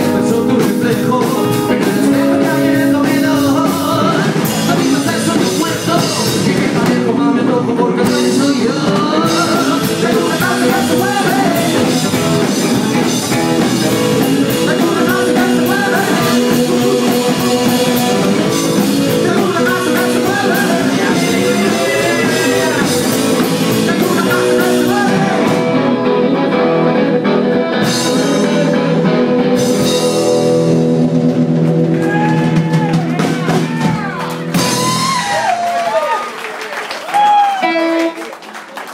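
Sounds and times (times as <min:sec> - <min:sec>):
man singing: 0:00.0 - 0:30.4
rockabilly band playing: 0:00.0 - 0:38.9.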